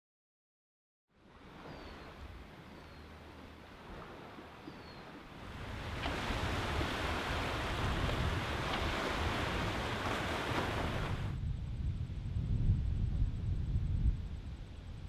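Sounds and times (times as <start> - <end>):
waves washing over rocks: 3.5 - 11.3.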